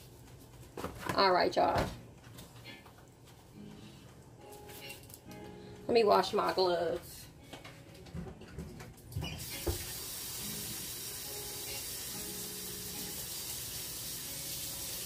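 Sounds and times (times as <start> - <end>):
faucet water running: 9.4 - 15.0.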